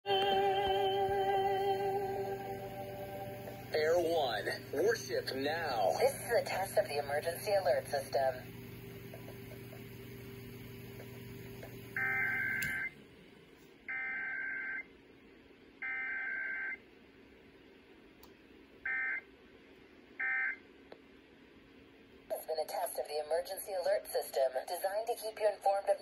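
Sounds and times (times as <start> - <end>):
steady low hum: 0.1 - 15.9.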